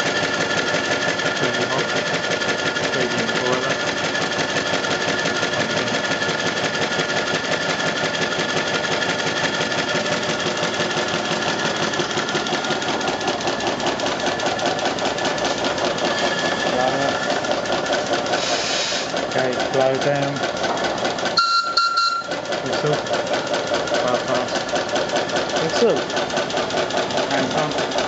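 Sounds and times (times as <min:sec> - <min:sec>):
steam locomotive mechanical beat: 0:00.1 - 0:28.0
steam hiss: 0:18.4 - 0:19.1.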